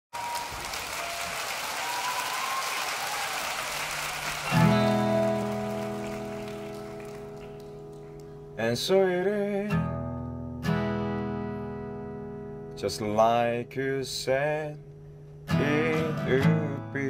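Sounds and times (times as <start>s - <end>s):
audience applause: 0.1s - 8.4s
acoustic guitar chord ringing: 4.4s - 17.0s.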